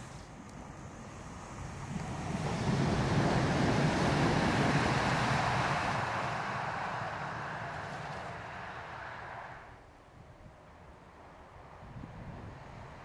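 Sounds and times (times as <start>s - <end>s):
tram wheels rolling on rails: 0.0s - 9.8s.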